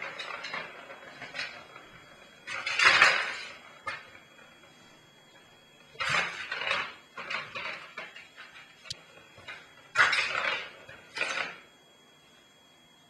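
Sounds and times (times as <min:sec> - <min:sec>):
ball rattling in plastic track toy: 0:00.0 - 0:01.8, 0:02.5 - 0:04.1, 0:06.0 - 0:08.6, 0:10.0 - 0:11.6.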